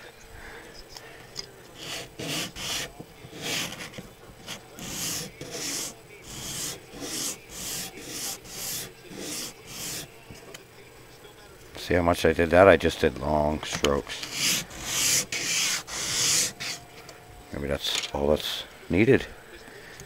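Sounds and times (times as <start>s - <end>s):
plastic being sanded by hand: 1.8s - 10.1s, 14.1s - 16.8s.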